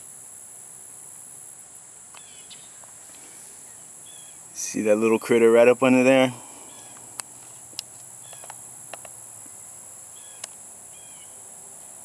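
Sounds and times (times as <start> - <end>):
insect chorus drone: 0.0 - 12.0
sharp clicks: 6.9 - 9.2.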